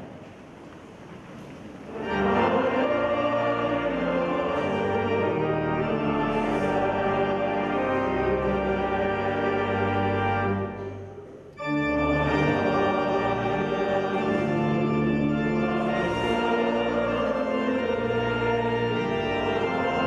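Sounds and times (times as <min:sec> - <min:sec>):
organ playing held chords: 0:01.9 - 0:20.0.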